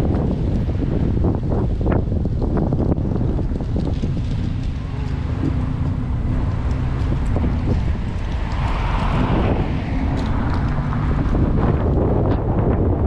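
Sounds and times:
low steady engine drone: 0.0s - 13.0s
wind buffeting microphone: 0.0s - 13.0s
oncoming car passing: 3.1s - 13.0s.

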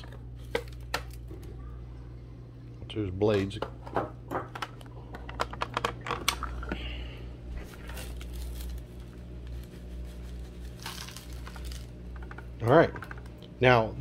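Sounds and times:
dry crumbly food pouring: 7.8s - 12.0s.

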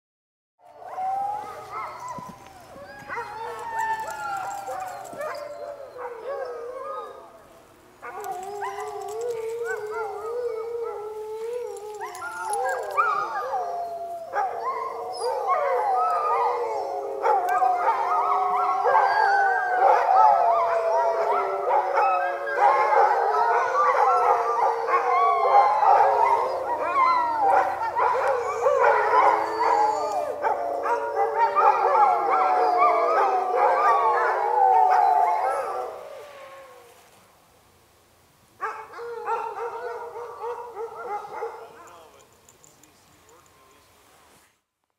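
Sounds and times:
sled dogs howling in chorus: 0.6s - 37.2s, 38.6s - 43.4s.

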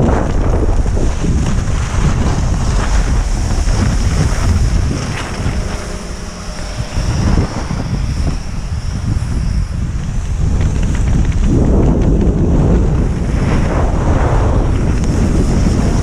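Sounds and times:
skis sliding on snow: 0.0s - 7.9s, 9.0s - 16.0s
wind buffeting microphone: 0.0s - 16.0s.

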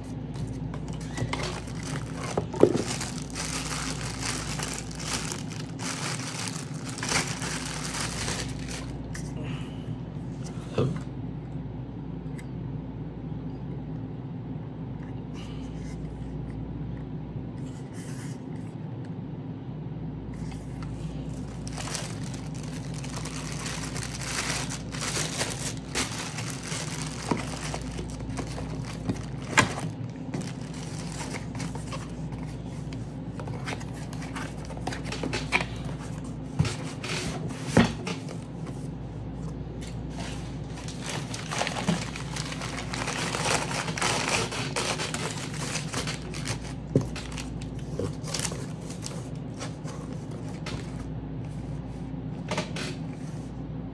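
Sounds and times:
packaging rustling and crinkling: 0.0s - 9.2s, 20.5s - 38.9s, 39.8s - 51.1s
steady low hum: 0.0s - 53.9s.

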